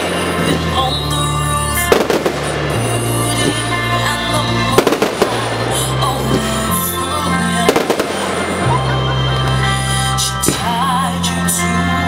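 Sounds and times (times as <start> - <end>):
firework shells bursting with crackle: 0.0 - 4.0
firework bangs: 0.0 - 9.8
music with bass notes: 0.0 - 12.0.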